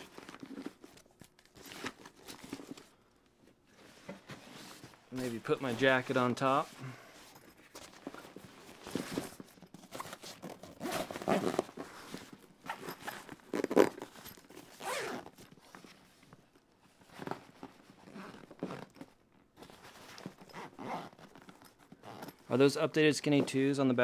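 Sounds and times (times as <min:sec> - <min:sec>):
zipper being pulled shut: 0:08.9 - 0:15.4, 0:18.0 - 0:19.0, 0:20.2 - 0:22.4.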